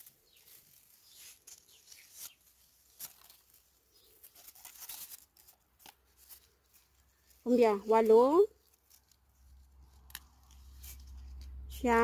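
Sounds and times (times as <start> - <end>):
leaves rustling: 0.0 - 12.0
berry stems snapping: 1.3 - 6.4, 9.9 - 11.6.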